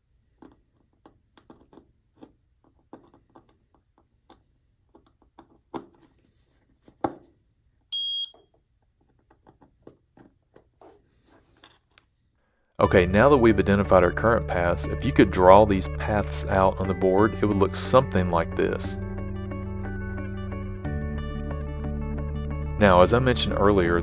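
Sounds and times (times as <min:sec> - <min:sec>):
multimeter continuity beep: 0:07.9 - 0:08.4.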